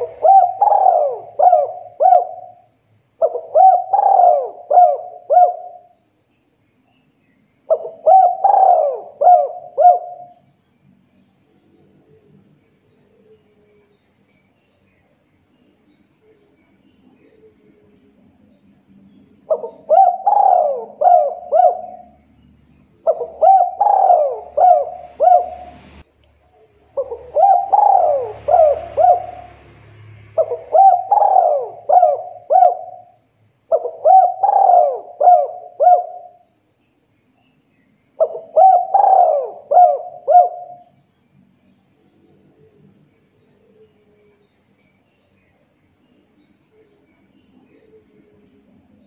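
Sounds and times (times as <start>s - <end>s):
dove cooing: 0.0s - 6.0s, 7.7s - 10.5s, 19.4s - 22.2s, 22.9s - 26.0s, 26.9s - 36.5s, 38.2s - 41.0s.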